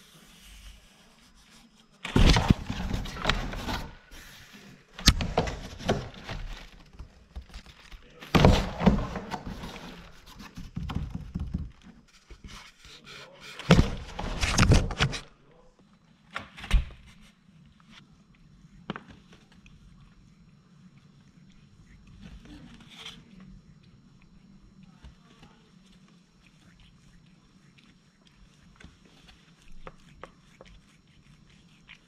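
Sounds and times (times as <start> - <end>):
cat playing in cardboard box: 0.0 - 12.8.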